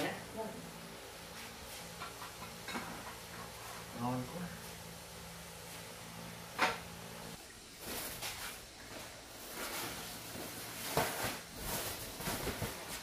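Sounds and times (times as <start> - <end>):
dishes being set down: 2.0 - 3.4
woven mat rustling: 7.8 - 13.0.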